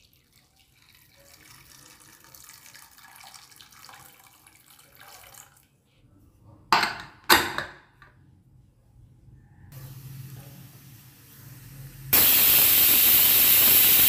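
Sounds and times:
water pouring into a pot: 0.0 - 5.7.

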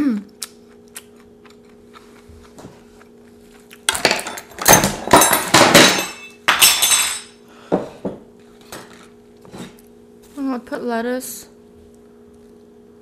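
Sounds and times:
dishes clattering and clinking: 3.9 - 9.8.

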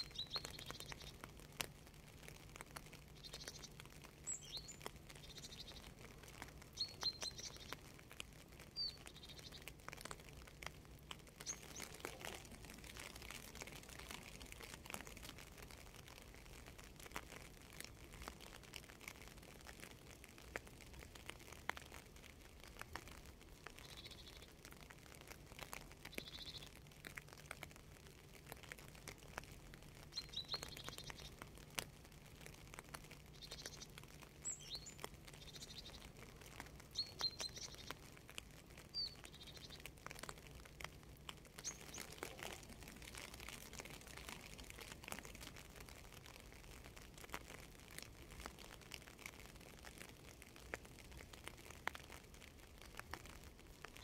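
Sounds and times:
small bird chirping: 0.0 - 1.3, 2.8 - 7.9, 8.7 - 10.6, 11.3 - 15.7, 23.7 - 24.6, 26.0 - 26.8, 30.1 - 31.4, 33.3 - 38.1, 38.8 - 40.4, 41.5 - 45.5
light rain dripping: 0.0 - 54.0.

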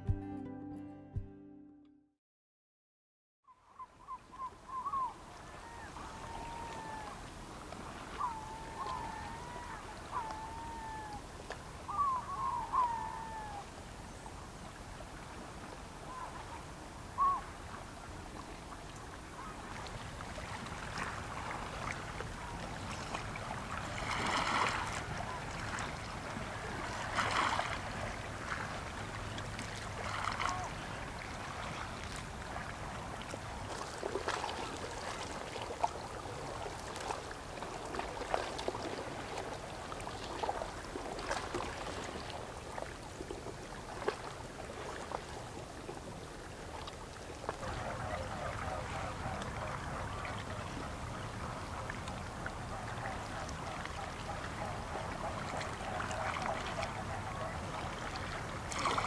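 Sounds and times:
bird calling: 3.5 - 7.3, 8.1 - 13.8, 16.1 - 17.6, 47.6 - 59.0
small waves lapping on rocks: 13.8 - 59.0.

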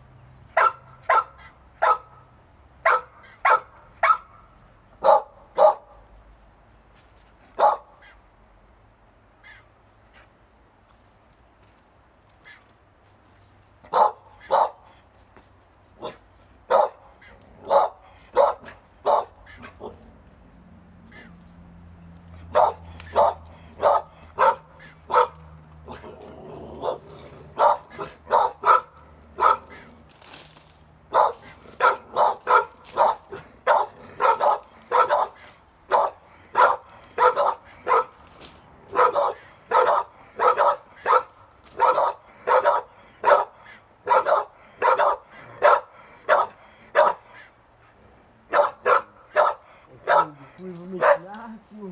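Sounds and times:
young dogs barking: 0.5 - 2.2, 2.8 - 6.0, 7.6 - 8.2, 13.9 - 14.9, 16.0 - 20.2, 22.4 - 30.1, 31.1 - 38.2, 38.9 - 47.6, 48.4 - 51.4.

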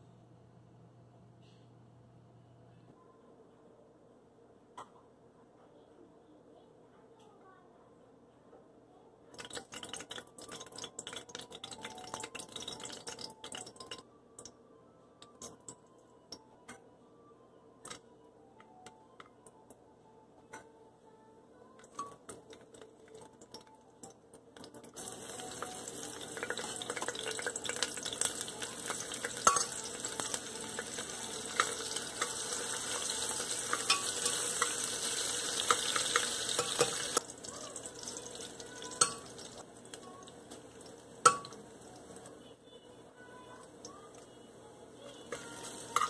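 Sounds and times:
spices and vegetables sizzling in oil: 9.4 - 13.7, 24.6 - 42.3, 44.9 - 46.0
steel spoon clinking on pot: 29.2 - 37.2, 41.2 - 41.6.

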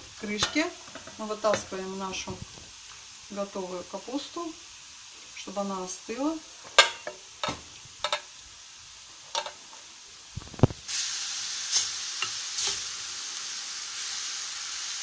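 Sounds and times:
mushrooms sizzling in a pan: 0.0 - 15.0
cookware clinking: 6.7 - 8.3.

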